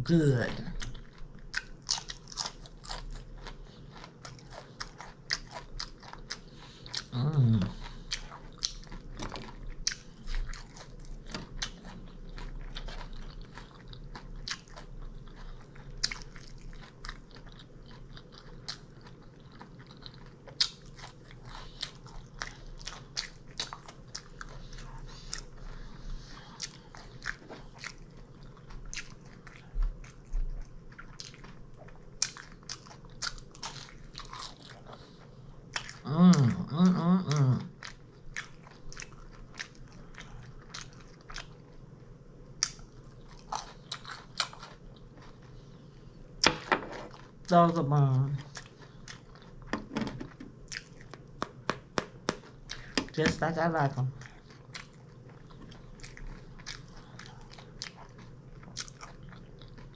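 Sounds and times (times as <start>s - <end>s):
person chewing crunchy food: 0.7s - 42.0s, 42.6s - 47.5s, 48.3s - 59.9s
person humming: 7.1s - 7.7s, 36.1s - 37.7s.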